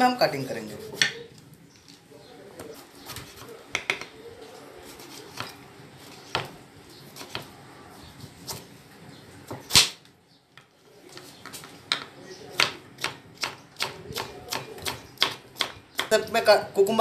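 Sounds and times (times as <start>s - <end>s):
knife chopping on wooden board: 7.2s - 7.5s, 12.6s - 16.1s.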